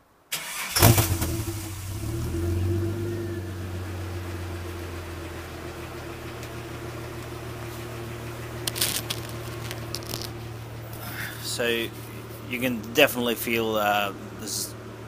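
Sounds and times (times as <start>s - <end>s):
car exhaust idling: 0.8s - 15.0s
microphone cable clicks and rustles: 8.6s - 11.0s.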